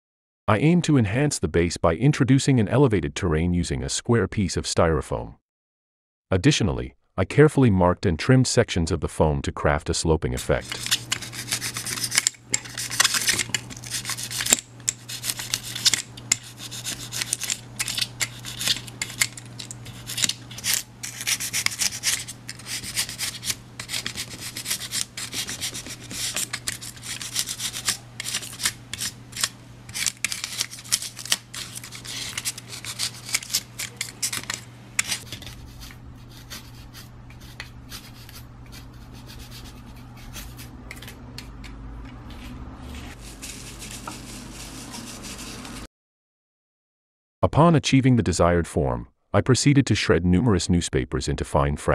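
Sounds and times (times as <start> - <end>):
low steady hum: 10.3 - 45.9
knife scraping styrofoam: 10.5 - 41.2, 42.3 - 45.9.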